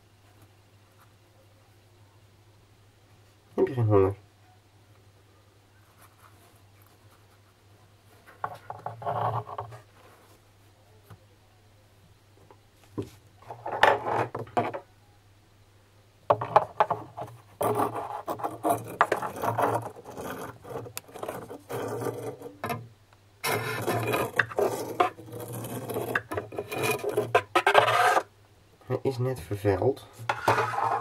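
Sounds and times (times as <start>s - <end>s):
rough scraping and rubbing: 8.2s - 10.4s, 16.6s - 22.8s, 23.4s - 28.3s, 30.2s - 31.0s.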